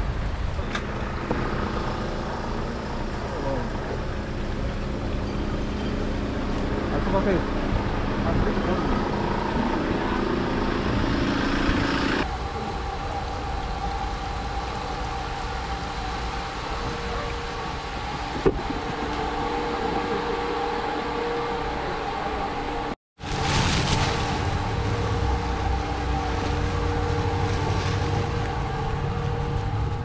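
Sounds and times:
machine hum with low rumble: 0:00.0 - 0:30.0
open-air hubbub: 0:00.0 - 0:30.0.

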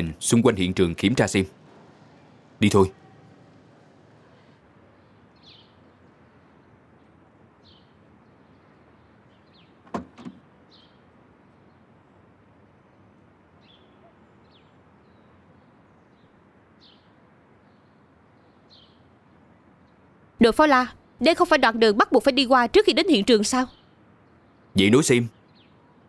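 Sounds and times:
car door shutting: 0:09.8 - 0:10.5.

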